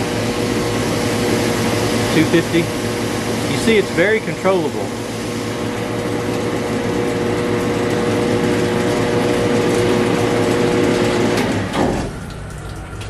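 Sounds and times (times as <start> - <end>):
pressure washer pump running: 0.0 - 13.0.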